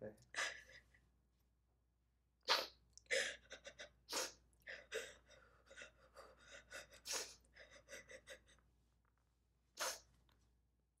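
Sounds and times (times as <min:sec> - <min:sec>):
woman sobbing: 0:03.1 - 0:04.0, 0:04.6 - 0:08.6.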